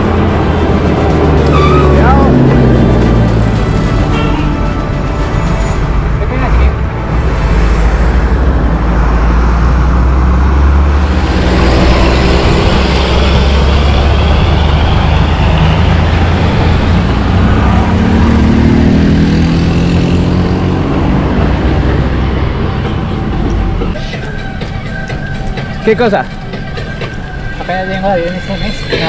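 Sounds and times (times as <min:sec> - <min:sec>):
vehicle engine speeding up: 0:00.0 - 0:24.0
heavy low rumble: 0:00.0 - 0:24.3.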